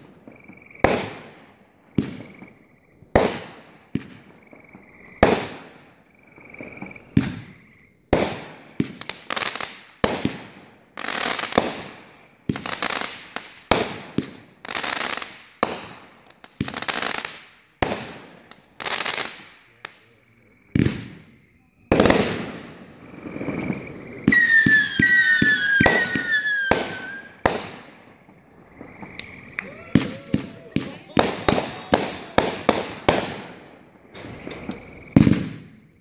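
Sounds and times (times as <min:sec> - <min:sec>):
firework shots: 0:00.0 - 0:04.6, 0:05.2 - 0:06.0, 0:06.6 - 0:36.0
firework crackling: 0:03.1 - 0:04.4, 0:06.8 - 0:19.8, 0:21.9 - 0:35.8.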